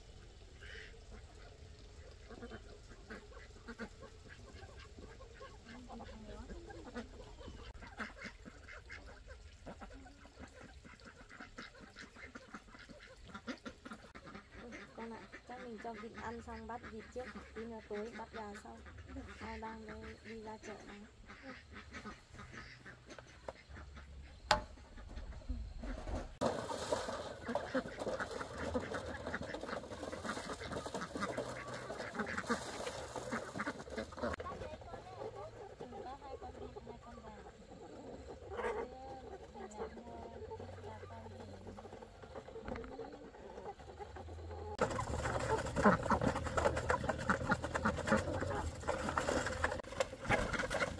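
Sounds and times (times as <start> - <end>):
ducks quacking: 0.0 - 50.9.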